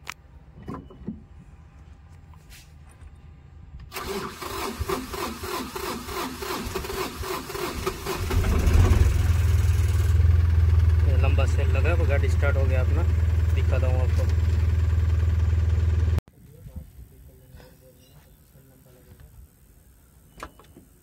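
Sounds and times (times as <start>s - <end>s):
truck engine cranking and starting: 3.9s - 16.2s.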